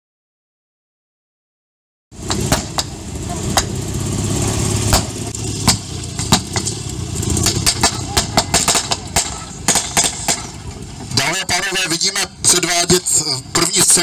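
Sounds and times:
military vehicle engine rumbling: 2.1s - 14.0s.

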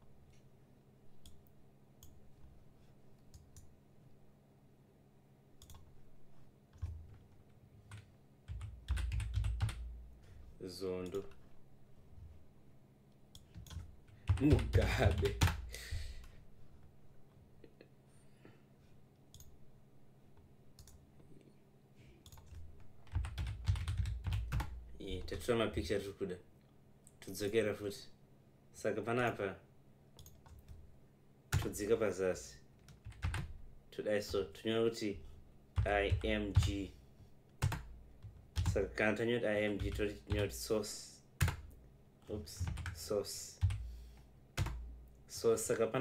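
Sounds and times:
low steady hum: 0.0s - 46.0s
computer mouse clicks: 5.6s - 5.9s, 19.3s - 19.5s, 30.2s - 30.7s.

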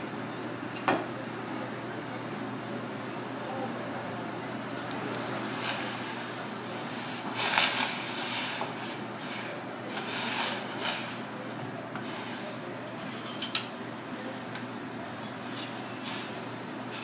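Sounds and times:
steady hiss: 5.3s - 12.7s.

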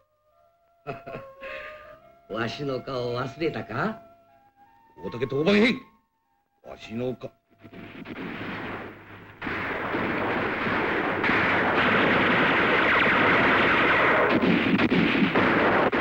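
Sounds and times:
rapid gunfire and blasts: 7.7s - 16.0s.

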